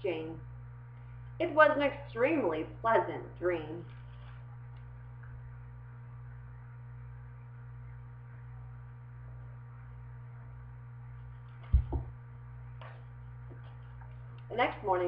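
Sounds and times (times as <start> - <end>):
low electrical hum: 0.0 - 15.0
book put down thumps: 11.6 - 12.1.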